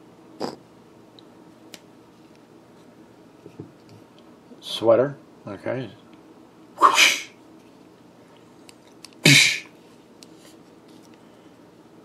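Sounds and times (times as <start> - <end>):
person sneezing: 6.8 - 7.4, 9.2 - 9.7.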